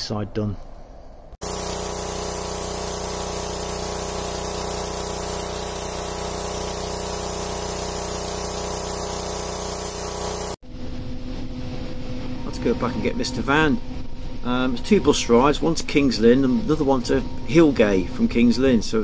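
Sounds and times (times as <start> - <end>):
pressure washer hum: 1.4 - 10.6
water jet spraying on steel hull: 1.4 - 10.6.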